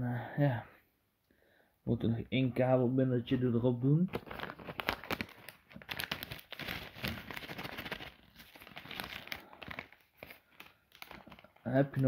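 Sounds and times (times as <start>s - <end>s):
plastic bag crinkling: 4.1s - 12.0s.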